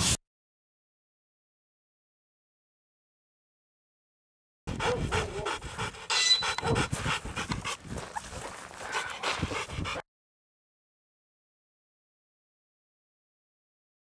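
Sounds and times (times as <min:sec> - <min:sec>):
dog panting: 0:04.7 - 0:10.0.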